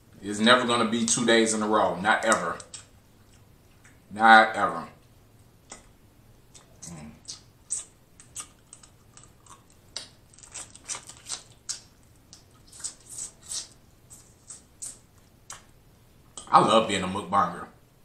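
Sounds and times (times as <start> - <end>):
wet eating sounds: 6.5 - 15.7
shells crackling and snapping: 7.7 - 13.0.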